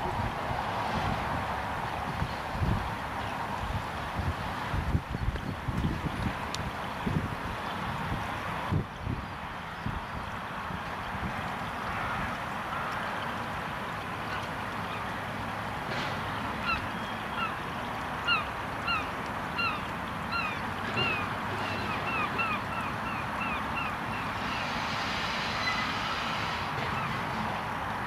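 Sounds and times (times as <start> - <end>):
bird honking: 16.6 - 24.8
steam railmotor running: 24.1 - 28.0.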